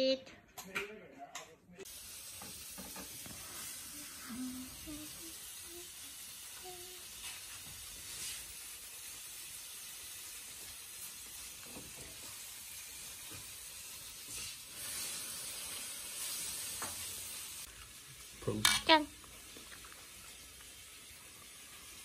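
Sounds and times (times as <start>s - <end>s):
sausages sizzling on a grill: 1.8s - 22.0s.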